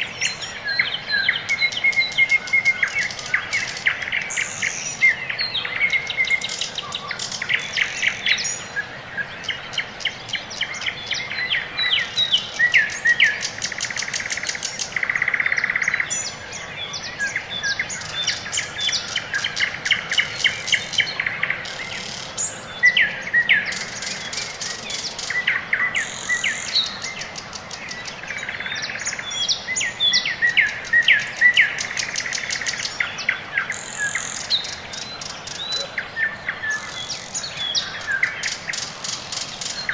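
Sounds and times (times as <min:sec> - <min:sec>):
birds singing and trilling: 0:00.0 - 0:39.9.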